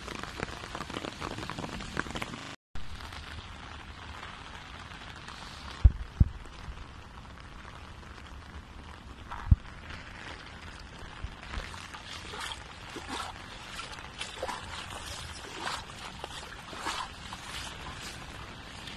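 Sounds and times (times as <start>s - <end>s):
light rain on puddle: 0.0s - 18.9s
footsteps splashing through water: 9.3s - 18.9s.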